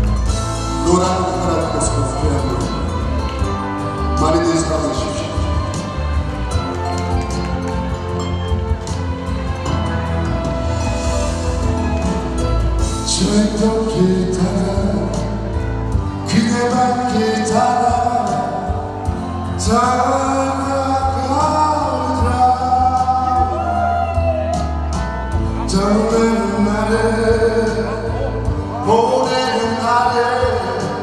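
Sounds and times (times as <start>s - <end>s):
instrumental accompaniment: 0.0s - 31.0s
man singing into microphone: 0.7s - 3.1s, 13.0s - 24.5s, 25.5s - 31.0s.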